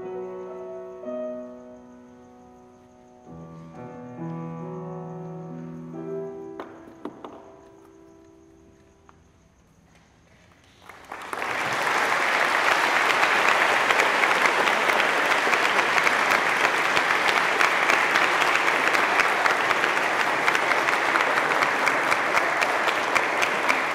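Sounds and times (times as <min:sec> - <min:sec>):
audience applauding: 0:10.6 - 0:23.9.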